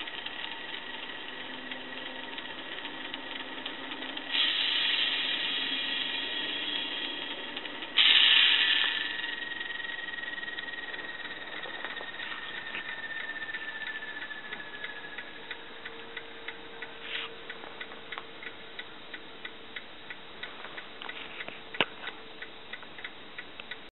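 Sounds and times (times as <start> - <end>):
light ticking: 0.0 - 23.9
low steady hum: 0.0 - 23.9
high whistle falling in pitch: 8.0 - 16.2.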